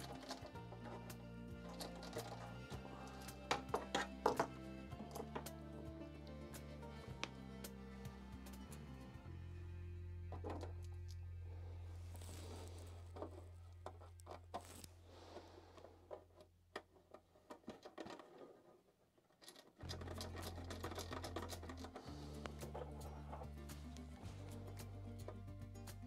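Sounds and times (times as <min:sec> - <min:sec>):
background music: 0:00.0 - 0:13.2, 0:19.8 - 0:26.0.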